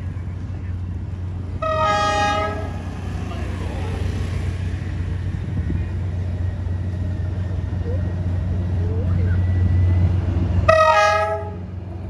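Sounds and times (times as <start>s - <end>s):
low engine rumble: 0.0s - 12.0s
locomotive horn: 1.6s - 2.8s, 10.6s - 11.8s.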